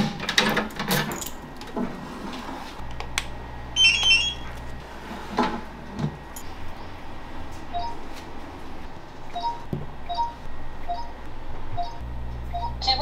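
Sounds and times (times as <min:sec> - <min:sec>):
two-note touchscreen beeps: 0:03.8 - 0:04.4
high electronic beeps: 0:03.8 - 0:04.5, 0:09.4 - 0:11.2.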